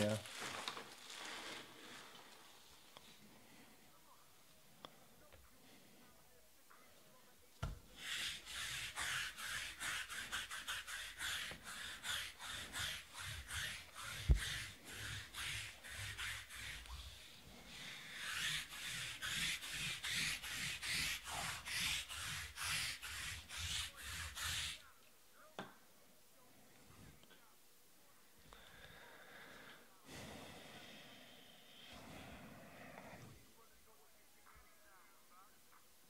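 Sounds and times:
arm rubbing on tabletop: 7.9 - 24.9.

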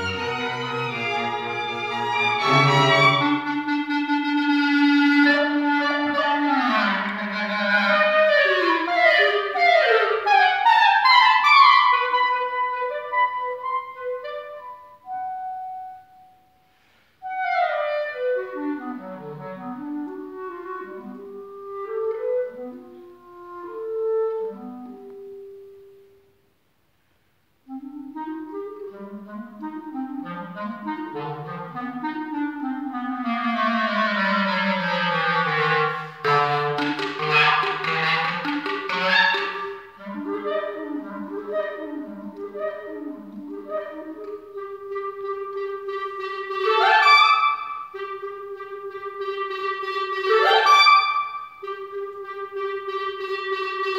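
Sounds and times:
clarinets and string quartet playing: 0.0 - 12.0, 29.0 - 53.9.

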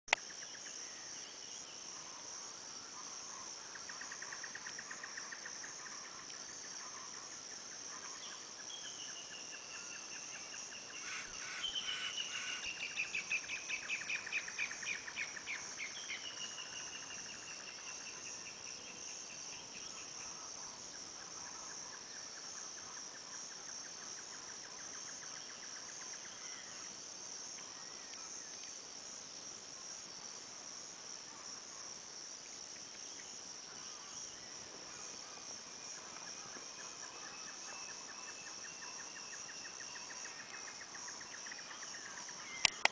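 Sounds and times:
insects droning: 0.1 - 42.9.

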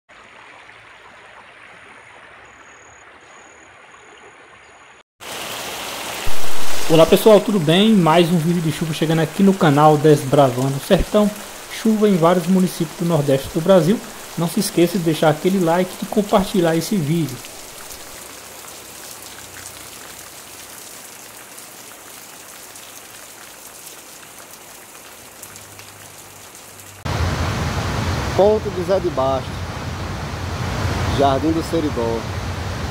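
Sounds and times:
steady rain on plants: 5.2 - 27.5
floodwater rushing through creek: 5.2 - 32.9.

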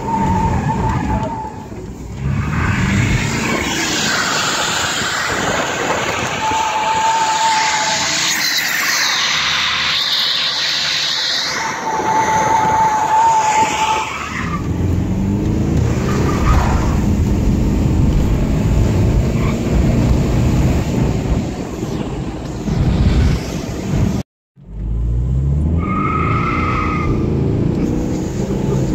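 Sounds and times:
diesel engine revving: 14.6 - 21.4.

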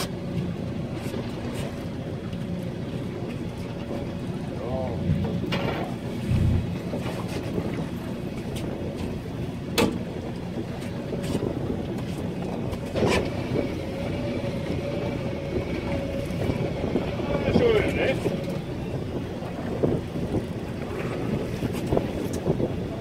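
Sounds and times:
choppy sea water: 0.0 - 23.0
wind: 0.0 - 23.0
sharp knocks on boat: 9.7 - 10.1.

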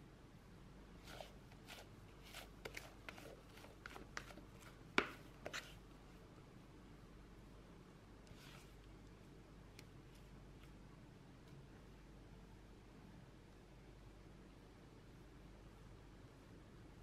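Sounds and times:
spatula scraping mixing bowl: 1.0 - 5.8
spatula tapping bowl: 2.3 - 5.7.

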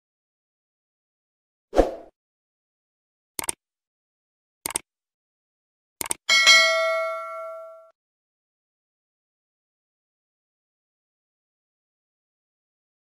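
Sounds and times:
short swish: 1.8 - 2.1
mouse clicks: 3.4 - 3.6, 6.0 - 6.2
bell ringing: 6.3 - 7.9.

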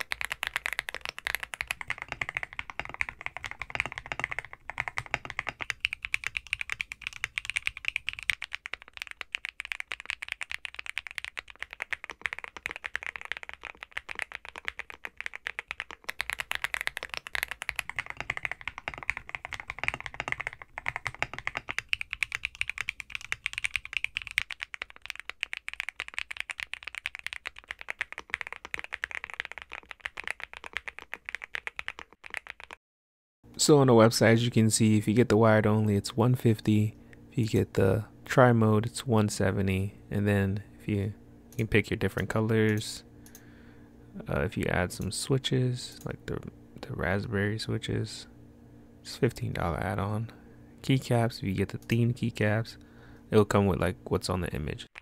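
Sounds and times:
fast typing on mechanical keyboards: 0.0 - 32.8.

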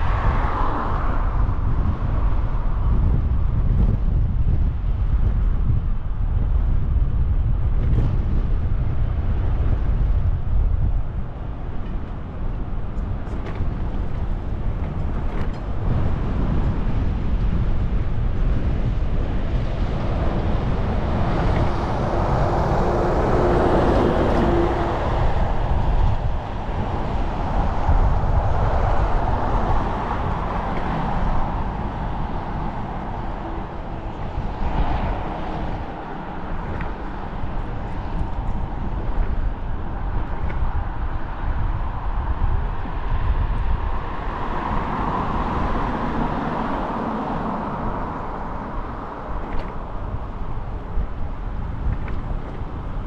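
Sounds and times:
wind buffeting camera: 0.0 - 53.0
vehicle passing: 19.6 - 50.2.

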